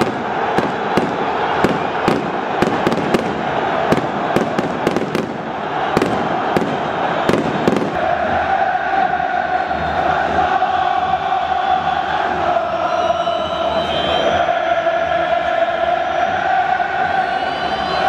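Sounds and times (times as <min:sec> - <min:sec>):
fireworks cracking: 0:00.0 - 0:08.1
stadium crowd noise: 0:00.0 - 0:18.0.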